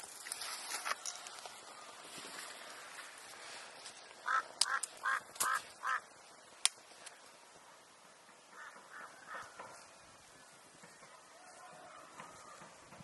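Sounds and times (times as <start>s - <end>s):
duck quacking: 4.2s - 6.0s.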